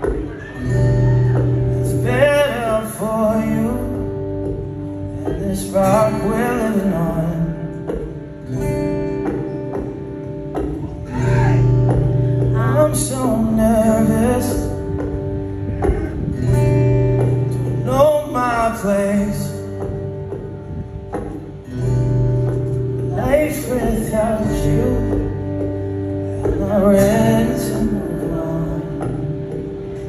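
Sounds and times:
acoustic guitar strummed: 0.0s - 30.0s
man singing: 1.7s - 4.5s, 5.1s - 7.9s, 12.5s - 15.0s, 17.6s - 19.9s, 23.0s - 25.6s, 26.3s - 29.6s.

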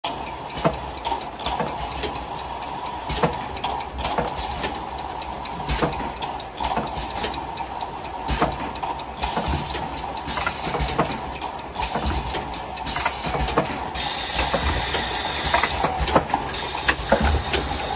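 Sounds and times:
machine clicks and clacks: 0.0s - 17.9s
bottling machine running: 9.1s - 17.9s
pneumatic air hissing: 12.9s - 17.9s.

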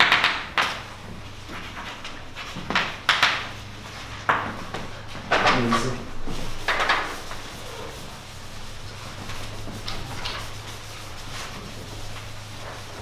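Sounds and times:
low room hum: 0.0s - 13.0s
chalk scraping on blackboard: 6.2s - 13.0s
chalk scratches and taps: 6.2s - 13.0s.

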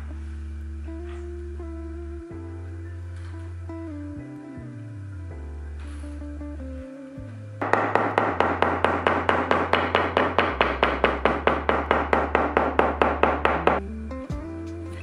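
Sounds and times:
soft background music: 0.0s - 15.0s
mallet tapping leather on wood: 7.6s - 13.8s.

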